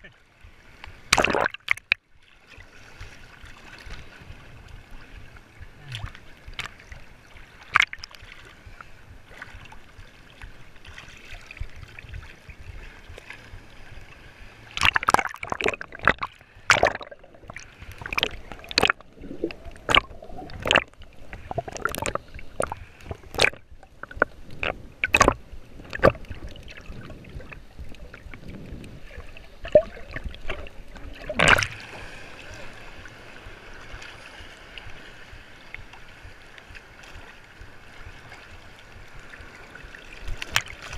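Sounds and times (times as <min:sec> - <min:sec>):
seawater lapping and splashing: 0:00.0 - 0:40.9
sharp splashes and knocks: 0:01.1 - 0:02.0, 0:07.6 - 0:08.2, 0:14.8 - 0:28.2, 0:29.6 - 0:31.8.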